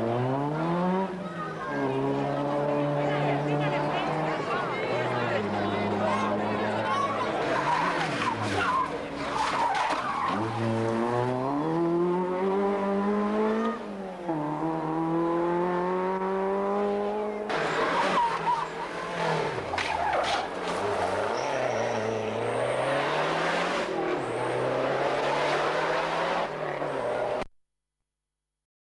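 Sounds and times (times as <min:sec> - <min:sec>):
rally car engines revving: 0:00.0 - 0:27.5
tyre noise on tarmac: 0:17.5 - 0:23.2.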